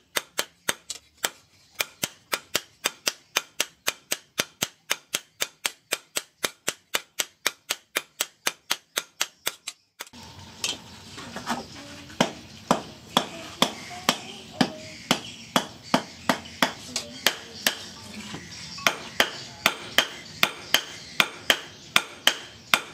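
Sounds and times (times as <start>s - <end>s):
hammers striking steel blade: 0.1s - 10.8s, 12.2s - 17.9s, 18.8s - 22.9s
steady background noise: 9.5s - 22.9s.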